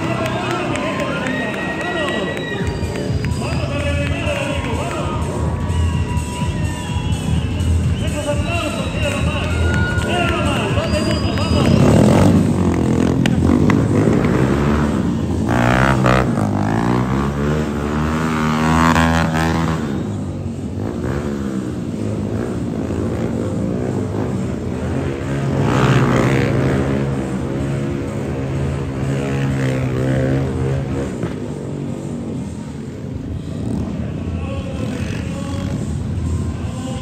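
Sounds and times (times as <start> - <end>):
motorcycles revving and passing: 0.0 - 37.0.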